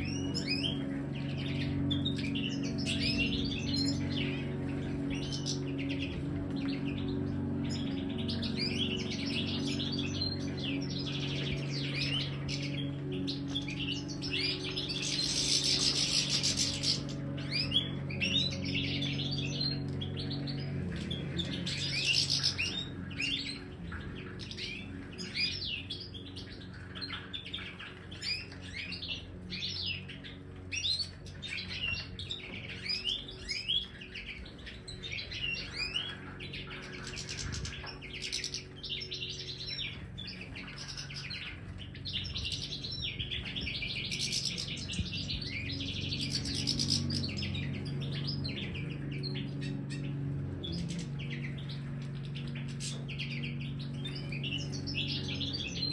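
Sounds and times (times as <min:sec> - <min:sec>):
flock of finches twittering: 0:00.0 - 0:55.9
steady low hum: 0:00.0 - 0:55.9.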